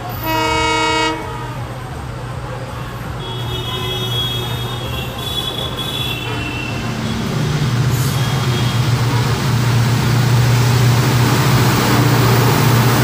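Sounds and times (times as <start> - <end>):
locomotive engine droning: 5.6 - 13.0.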